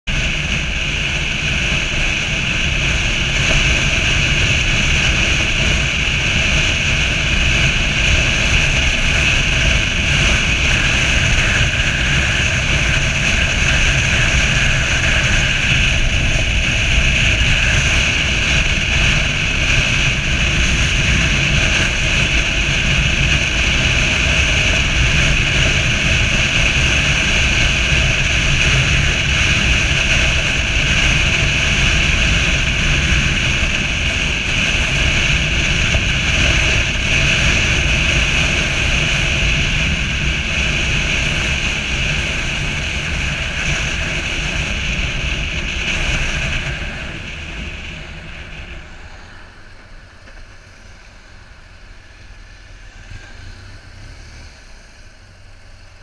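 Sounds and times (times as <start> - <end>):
motorcycle engine and tyres drone: 0.0 - 56.0
wind rushing over microphone: 0.1 - 56.0.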